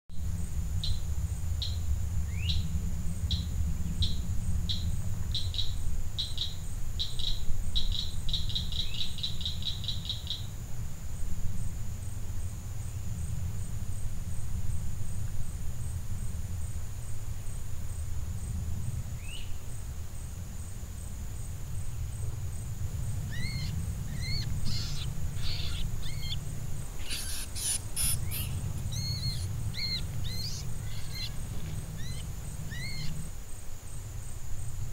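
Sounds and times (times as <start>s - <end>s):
high insect drone: 0.1s - 34.9s
low rumble: 10.6s - 34.9s
bird chirps: 23.3s - 33.3s.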